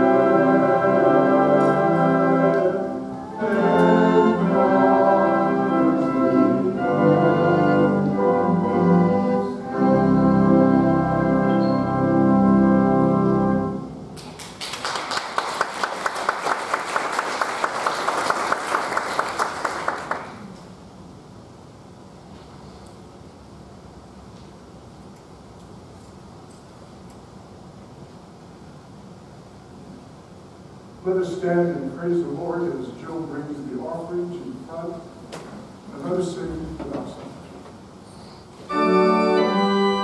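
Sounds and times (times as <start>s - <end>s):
organ chords: 0.0s - 14.2s, 38.6s - 40.0s
piano chords: 0.0s - 14.2s, 38.7s - 40.0s
congregation applauding: 14.2s - 20.6s.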